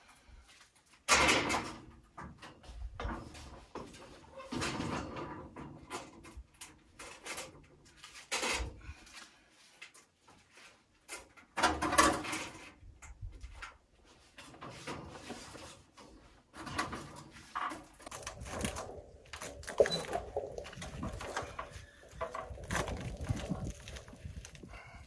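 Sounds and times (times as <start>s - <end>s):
stones scraping and knocking: 17.6s - 25.0s.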